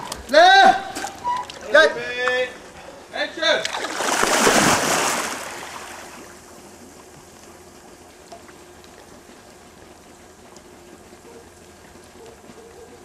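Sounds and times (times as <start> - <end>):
water lapping and trickling: 0.0 - 13.0
splash of person plunging into water: 3.6 - 6.2.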